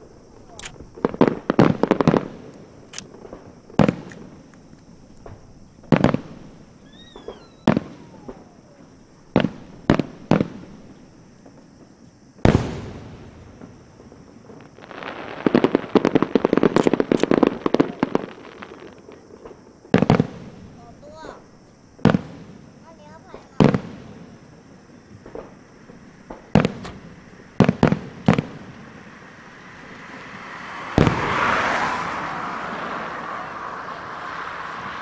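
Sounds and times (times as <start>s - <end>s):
fireworks booming: 0.0s - 35.0s
rapid crackling fireworks: 0.0s - 35.0s.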